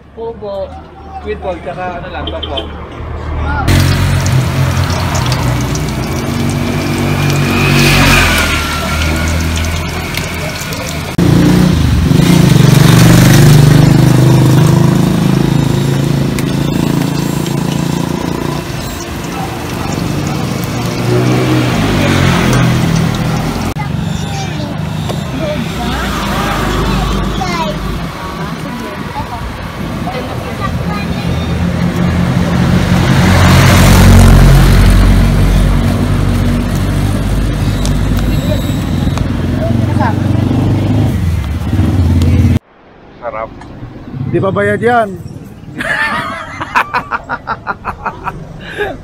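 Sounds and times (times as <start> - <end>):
vehicle passing by: 2.8 - 46.7
motorcycle engine running: 3.7 - 23.8.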